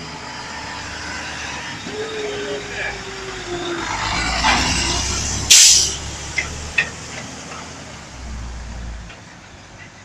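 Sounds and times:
garbage truck engine rumble: 0.0s - 10.0s
air brake hiss: 5.5s - 6.0s.

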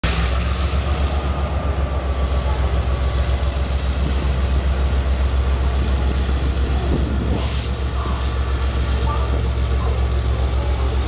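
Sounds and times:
freight train locomotive running: 0.0s - 11.0s.

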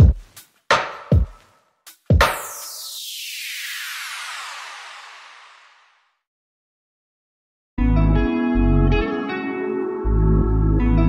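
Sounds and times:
descending whoosh effect: 2.5s - 6.2s.

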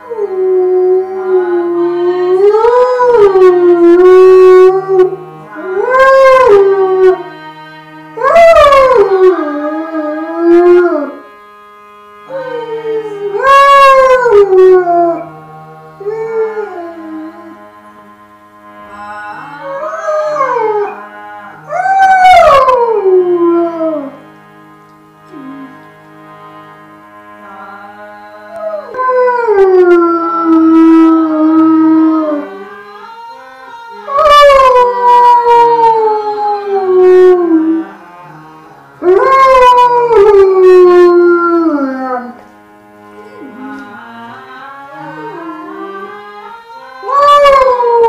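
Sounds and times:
dog howling: 0.0s - 7.2s, 8.2s - 11.2s, 12.3s - 15.3s, 16.0s - 17.6s, 19.6s - 21.0s, 21.7s - 24.2s, 28.5s - 32.5s, 34.0s - 37.9s, 39.0s - 42.4s, 47.0s - 48.0s
held instrumental notes: 0.0s - 48.0s.

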